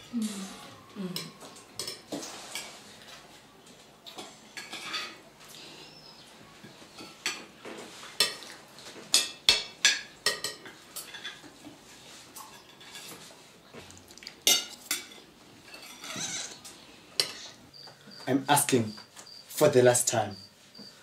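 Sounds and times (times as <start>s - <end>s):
cutlery clinking on plates: 1.2s - 3.1s, 4.1s - 5.2s, 6.9s - 13.3s, 14.4s - 17.6s.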